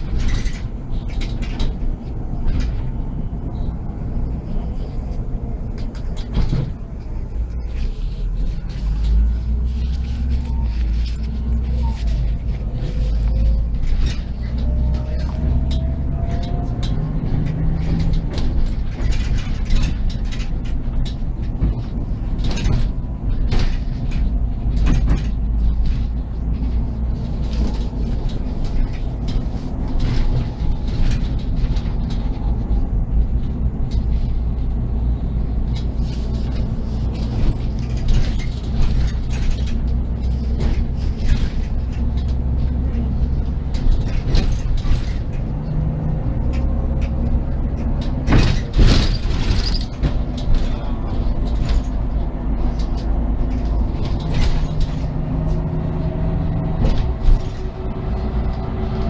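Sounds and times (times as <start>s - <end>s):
bus body rattling and creaking: 0.0s - 59.0s
bus engine droning: 0.0s - 59.0s.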